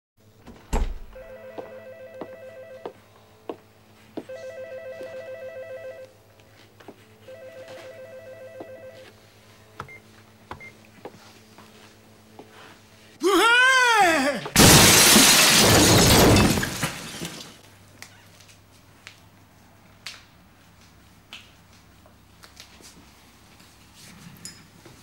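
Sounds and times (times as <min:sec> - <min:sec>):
electronic telephone ringing: 0:01.2 - 0:03.0, 0:04.3 - 0:06.1, 0:07.2 - 0:09.1.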